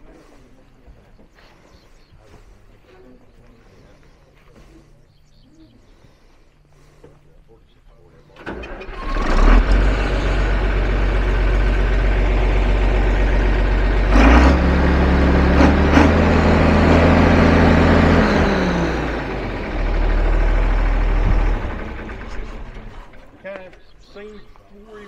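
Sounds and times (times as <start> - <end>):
tractor engine running: 8.0 - 24.1.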